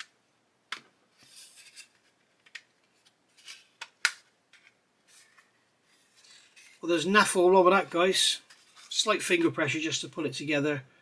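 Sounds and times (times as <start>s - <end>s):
soft plastic rubbing: 7.8s - 9.6s.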